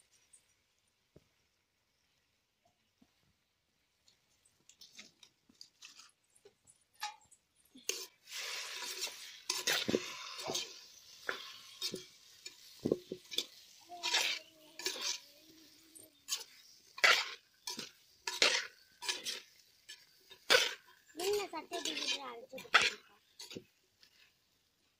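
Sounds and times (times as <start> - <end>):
sizzling hiss: 4.0 - 24.9
metal spoon clinking in clay pot: 16.2 - 21.0.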